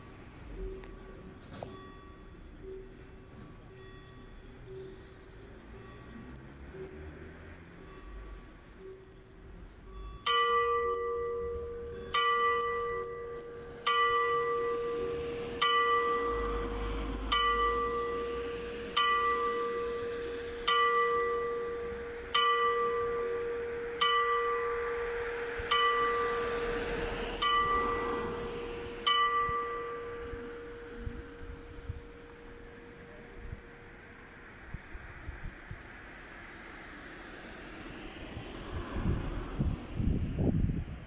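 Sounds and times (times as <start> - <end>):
tower bell striking: 10.0 - 16.7, 17.3 - 26.7, 27.4 - 34.0.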